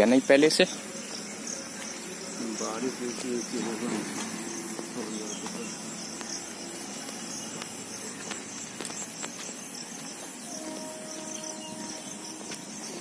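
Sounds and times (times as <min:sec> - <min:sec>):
insects trilling: 0:00.0 - 0:13.0.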